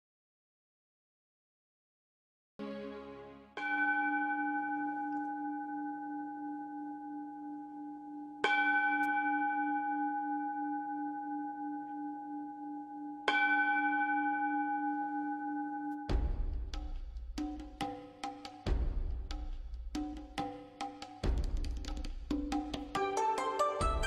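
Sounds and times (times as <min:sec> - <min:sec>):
singing bowl ringing: 0:03.6 - 0:16.1.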